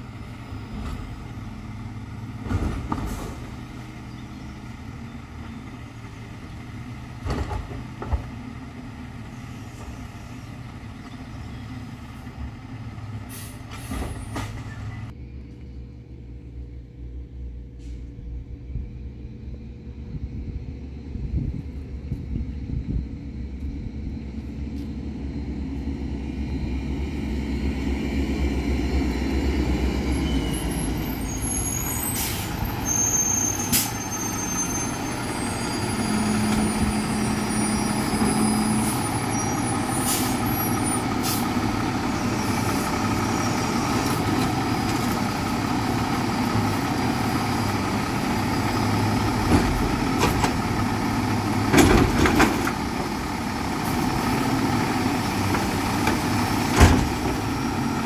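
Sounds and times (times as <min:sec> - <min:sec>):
garbage truck diesel engine: 0:00.0 - 0:58.0
air brakes hissing: 0:13.3 - 0:14.9, 0:17.7 - 0:18.2, 0:30.2 - 0:41.6.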